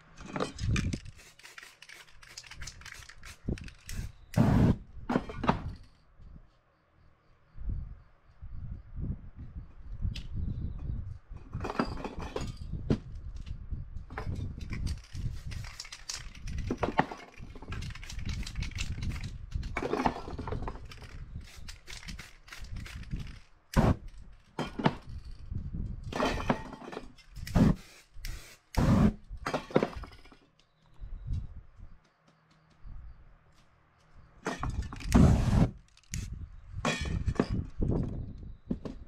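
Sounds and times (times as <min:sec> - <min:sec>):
spray paint can hissing: 0:01.0 - 0:04.8, 0:27.6 - 0:29.2.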